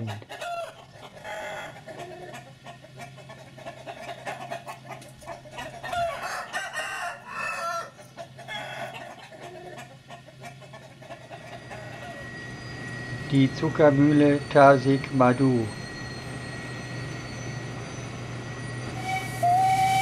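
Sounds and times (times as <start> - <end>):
roosters clucking and crowing: 0.0 - 14.6.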